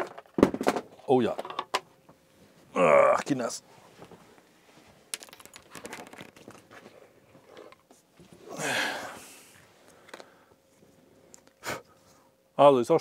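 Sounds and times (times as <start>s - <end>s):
cardboard and paper rustling: 5.2s - 7.7s.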